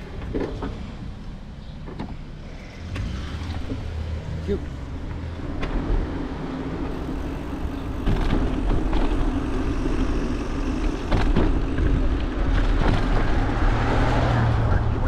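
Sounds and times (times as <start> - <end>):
bicycle tyres rumbling: 2.0 - 15.0
knocks and rattles: 10.8 - 13.6.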